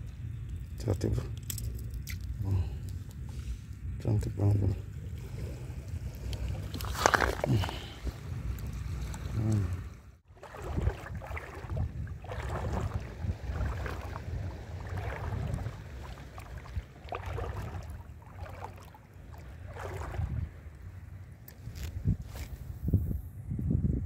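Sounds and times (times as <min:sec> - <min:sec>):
sea water sloshing: 0:04.9 - 0:21.2
wind buffeting microphone: 0:10.3 - 0:24.0.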